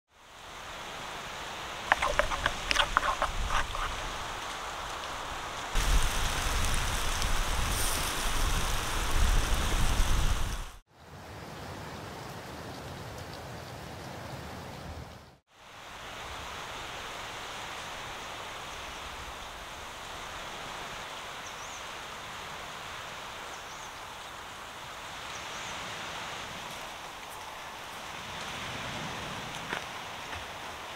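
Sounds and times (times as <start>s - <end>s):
outdoor background hiss: 0.1s - 30.9s
chicken sizzling on grill: 3.5s - 10.7s.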